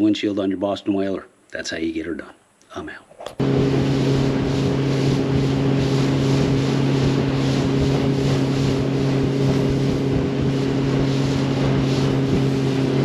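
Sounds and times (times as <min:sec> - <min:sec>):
motorboat engine humming: 0:03.4 - 0:13.0
water rushing past boat: 0:03.4 - 0:13.0
wind rushing: 0:03.4 - 0:13.0.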